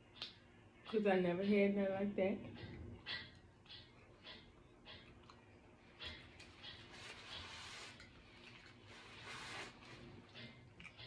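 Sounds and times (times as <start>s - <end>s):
chewing mouth smacks: 2.6s - 6.8s, 10.4s - 11.0s.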